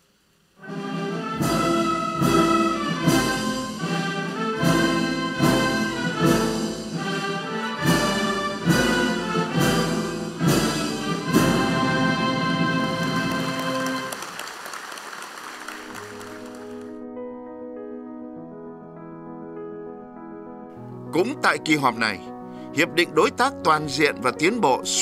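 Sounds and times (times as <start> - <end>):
brass-led orchestral march music: 0.6 - 14.2.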